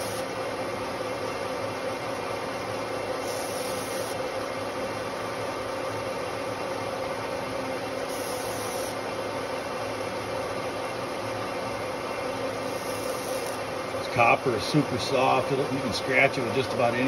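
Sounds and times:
cutting tool turning metal: 0.0 - 0.4, 3.2 - 4.4, 8.0 - 9.1, 12.6 - 13.8
metal lathe humming: 0.0 - 5.4, 7.2 - 10.2, 11.5 - 17.0.

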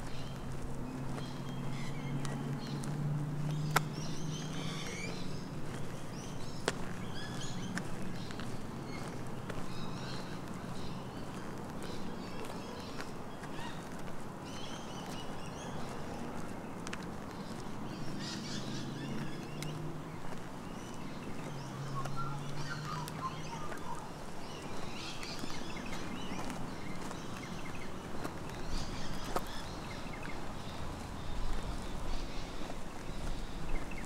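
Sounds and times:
birds calling and chirping: 0.0 - 34.0
footsteps on bush track: 0.0 - 34.0.

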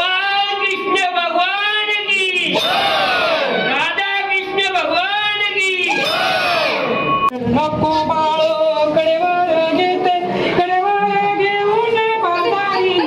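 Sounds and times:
person singing devotional song: 7.6 - 13.0.

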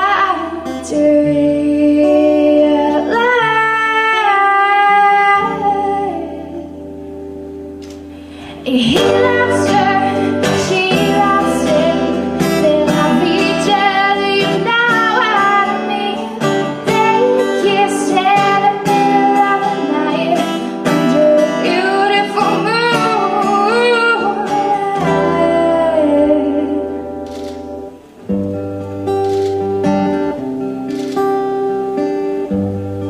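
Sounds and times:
woman singing: 0.0 - 7.0, 8.3 - 27.2
acoustic guitar: 0.0 - 33.0.

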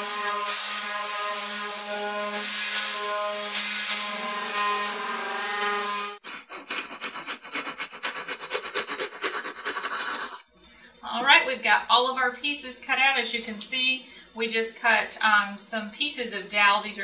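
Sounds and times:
orbital sander running: 0.0 - 7.6
hand saw cutting wood: 0.0 - 10.4.

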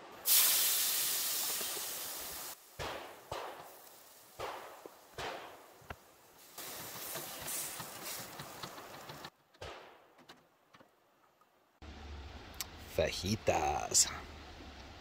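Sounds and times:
short sharp sizzles: 0.2 - 2.8
meat sizzling in a skillet: 0.3 - 2.7.

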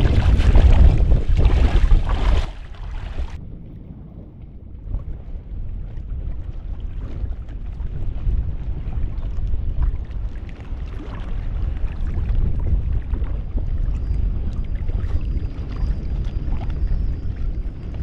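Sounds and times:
small splashes and knocks: 0.0 - 3.4
water sloshing: 0.0 - 3.4
wind on microphone: 0.0 - 18.0.

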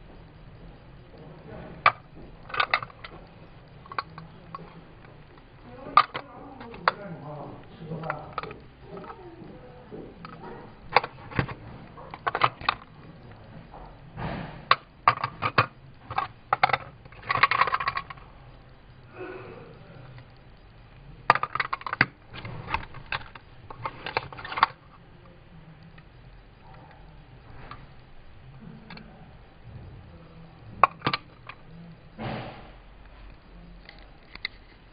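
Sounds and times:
plastic cases clicking together: 1.1 - 13.9, 14.6 - 18.6, 21.2 - 24.9, 30.8 - 32.5.

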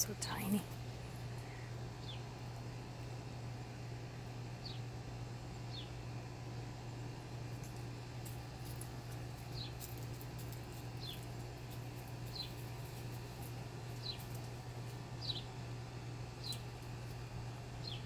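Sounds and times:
steady low hum: 0.0 - 18.0
small bird chirping: 15.2 - 15.5.

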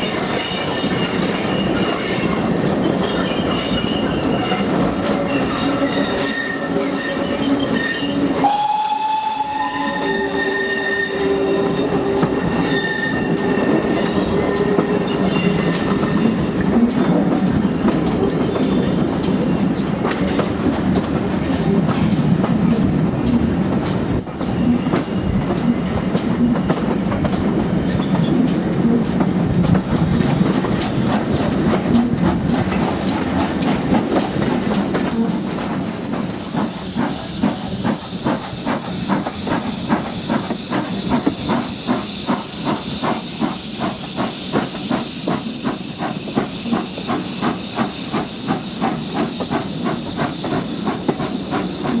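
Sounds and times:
fast rhythmic train beats: 0.0 - 52.0
train rumble and hiss: 0.0 - 52.0.

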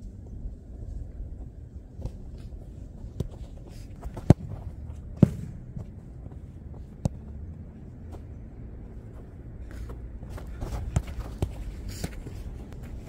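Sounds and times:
football kicks on turf: 4.1 - 5.9
low rumble: 4.2 - 9.7.

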